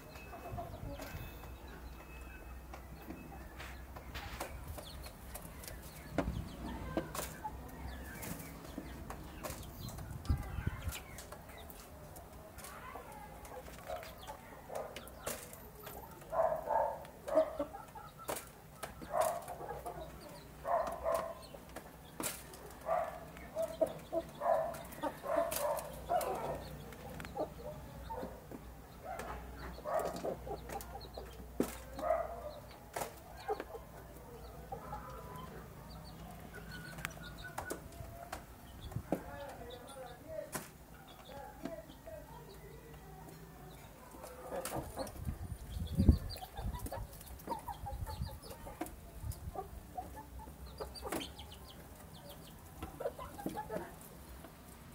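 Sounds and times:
chickens clucking softly: 13.1s - 40.2s, 41.0s - 54.7s.

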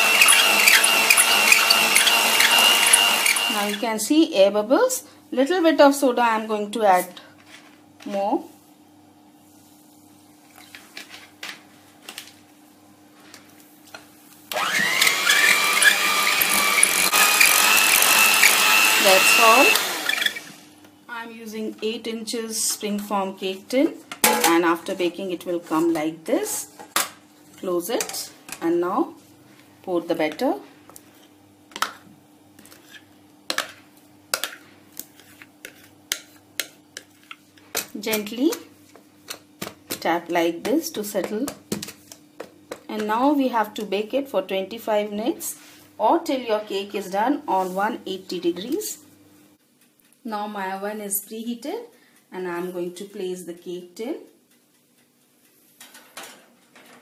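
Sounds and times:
electric hand mixer whining: 0.0s - 3.8s, 14.5s - 20.7s.

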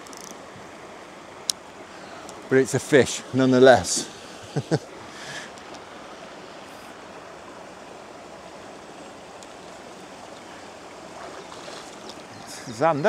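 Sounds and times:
faint ticks: 0.0s - 0.4s, 9.4s - 9.6s, 12.0s - 12.5s.

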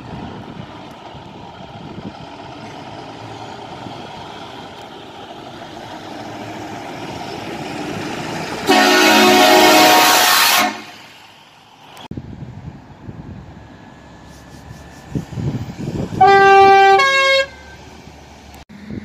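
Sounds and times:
diesel truck engine: 0.0s - 19.0s
truck horn blast: 8.6s - 11.2s, 16.2s - 17.8s.

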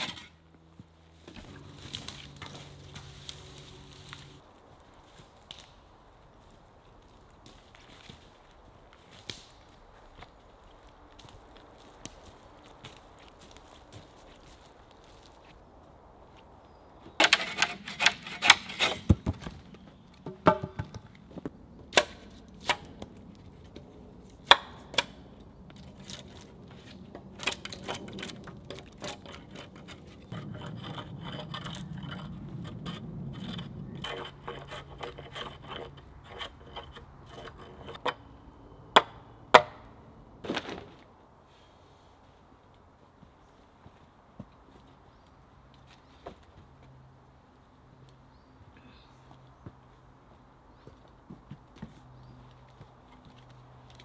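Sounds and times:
timber pole scraping: 0.0s - 0.4s, 17.2s - 19.3s, 26.0s - 38.2s
wooden poles knocking: 20.2s - 21.1s.

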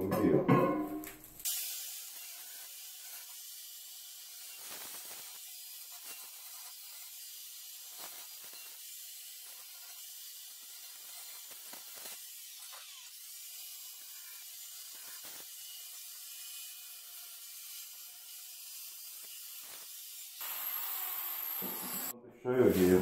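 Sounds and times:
fan hissing: 20.4s - 22.1s.

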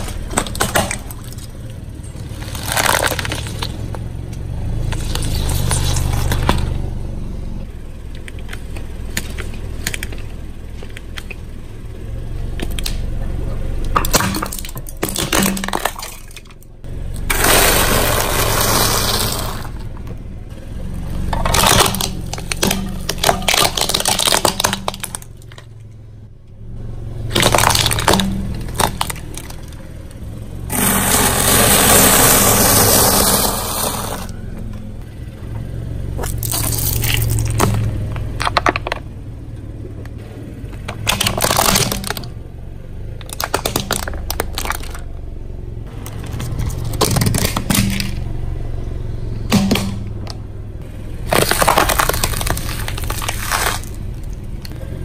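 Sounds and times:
gritty crunching under tyre: 0.0s - 55.0s
plastic toys cracking and snapping: 2.4s - 3.9s, 13.9s - 16.6s, 21.3s - 25.7s, 27.3s - 29.8s, 36.2s - 39.0s, 40.9s - 42.3s, 43.2s - 45.0s, 46.0s - 48.2s, 51.3s - 54.8s.

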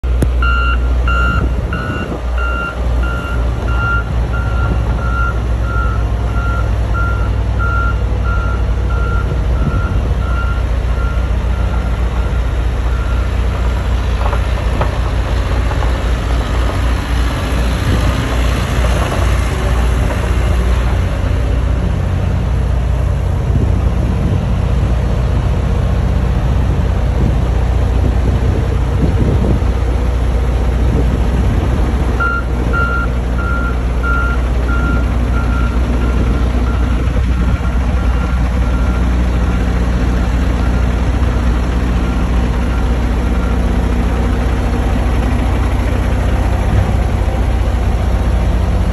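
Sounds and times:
diesel engines rumbling: 0.0s - 48.9s
vehicle backup alarm beeping: 0.4s - 13.4s, 32.2s - 44.0s.

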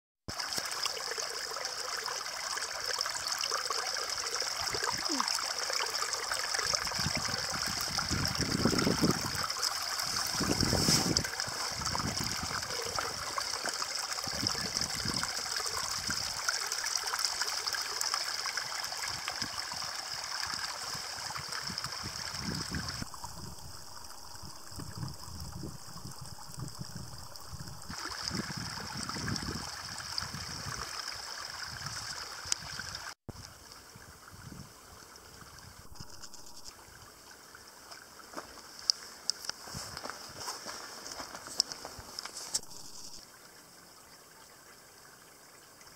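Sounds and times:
water trickling over rocks: 0.3s - 45.9s.

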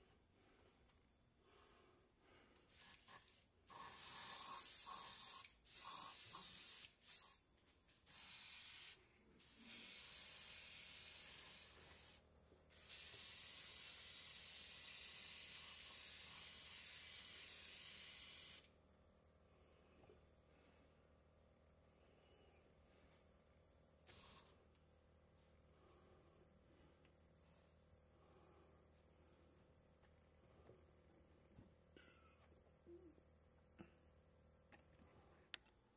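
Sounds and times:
airbrush spraying air hiss: 2.7s - 7.4s, 8.0s - 18.7s, 24.0s - 24.6s.

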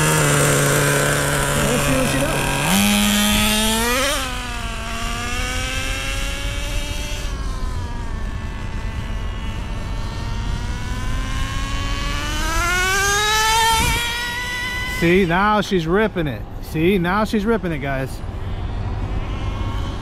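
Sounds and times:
model car engine whining: 0.0s - 15.5s.

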